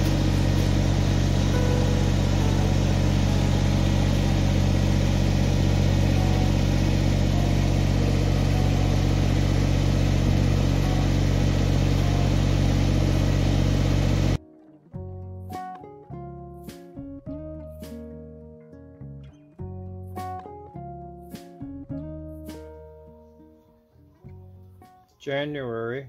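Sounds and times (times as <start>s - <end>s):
tractor diesel engine running: 0.0s - 14.4s.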